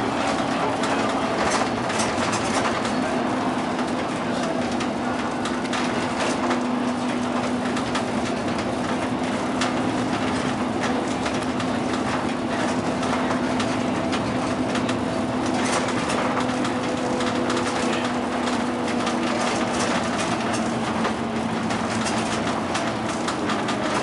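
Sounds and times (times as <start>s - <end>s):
bus engine humming: 0.0s - 24.0s
road noise: 0.0s - 24.0s
clicks and rattles: 9.6s - 24.0s.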